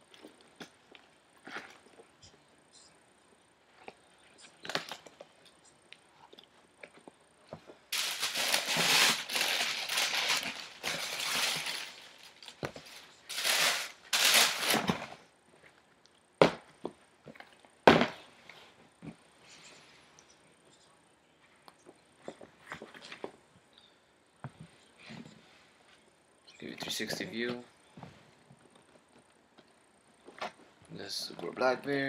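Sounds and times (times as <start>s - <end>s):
tissue paper rustling: 7.9s - 15.1s.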